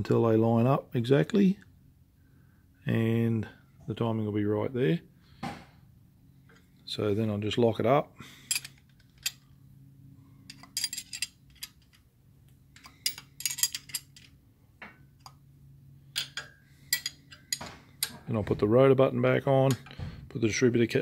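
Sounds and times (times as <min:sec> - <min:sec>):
metal spanner clicking on bolt: 0:10.5 - 0:12.0, 0:12.8 - 0:14.4, 0:16.2 - 0:18.2.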